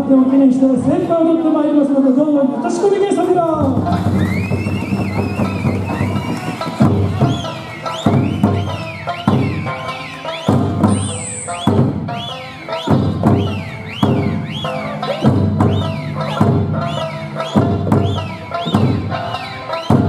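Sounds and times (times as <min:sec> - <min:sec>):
hand drum strokes: 0:03.6 - 0:20.0
folk music with singing: 0:03.9 - 0:20.0
finger whistles: 0:04.2 - 0:19.1.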